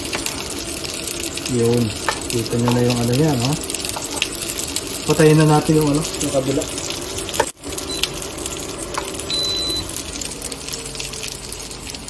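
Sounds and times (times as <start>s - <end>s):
fish sizzling in frying pan: 0.0s - 12.0s
cooktop electronic beeps: 5.0s - 10.6s.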